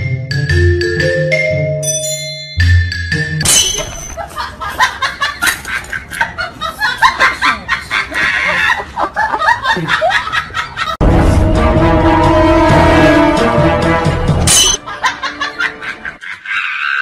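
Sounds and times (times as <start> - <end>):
people laughing: 4.2 - 11.0, 14.8 - 17.0
loud background music: 11.0 - 15.5.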